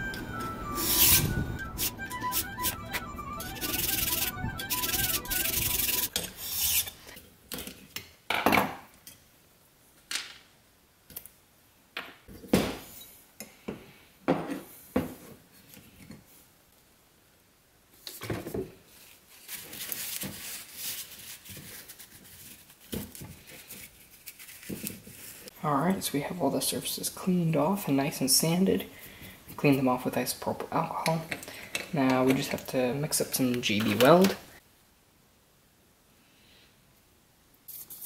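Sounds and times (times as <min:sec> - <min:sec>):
sanding and rubbing: 0:03.6 - 0:07.0
file rasping on metal: 0:03.6 - 0:07.1.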